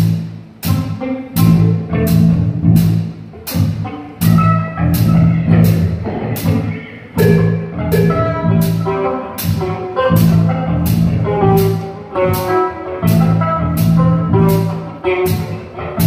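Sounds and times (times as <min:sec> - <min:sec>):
drum kit beat: 0:00.0 - 0:16.0
guitar notes: 0:00.0 - 0:16.0
sharp cymbal hits: 0:07.2 - 0:09.0.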